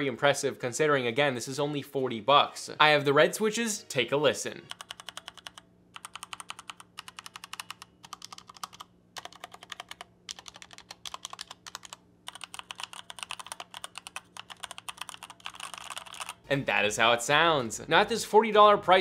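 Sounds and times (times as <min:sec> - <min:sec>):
mechanical keyboard typing: 0:04.7 - 0:16.4.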